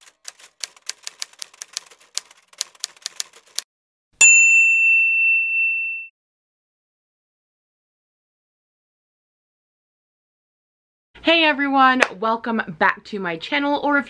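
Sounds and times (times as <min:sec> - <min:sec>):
typewriter key clacks: 0:00.0 - 0:03.6.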